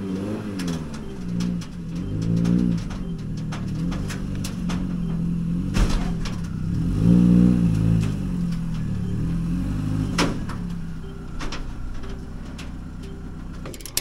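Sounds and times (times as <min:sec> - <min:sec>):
vehicle engine revving: 0:00.0 - 0:14.0
sharp metal clank: 0:13.7 - 0:14.0.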